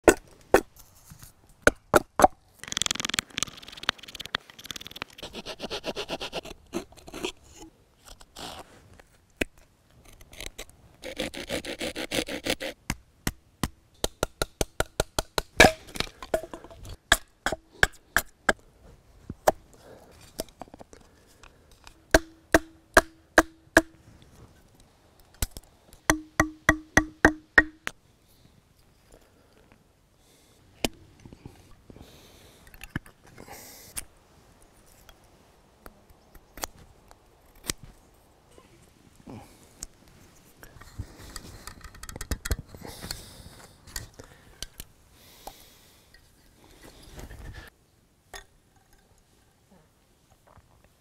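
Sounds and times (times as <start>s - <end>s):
hatchet knocking wood: 22.1s - 23.9s, 26.1s - 27.9s.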